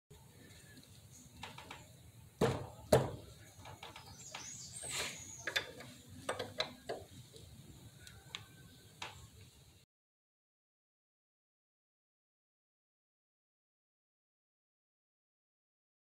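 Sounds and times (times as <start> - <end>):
metal scrape: 4.0 - 6.1.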